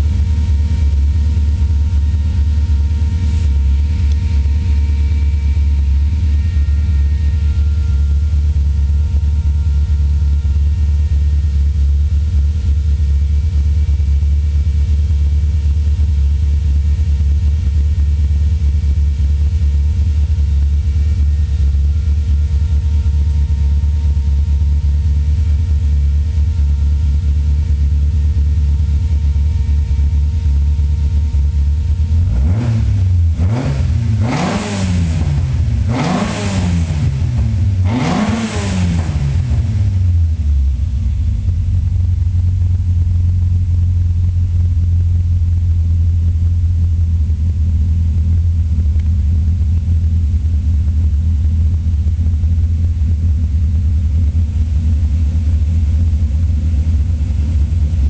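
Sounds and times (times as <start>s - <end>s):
engine revving in throttle blips: 0.0s - 9.7s, 31.9s - 40.4s
car engine idling: 0.0s - 58.0s.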